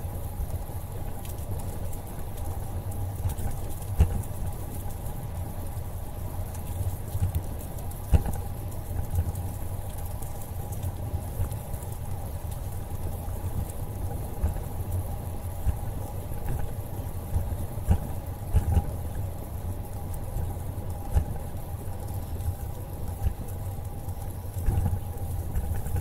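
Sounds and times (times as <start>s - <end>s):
wind on microphone: 12.9s - 26.0s.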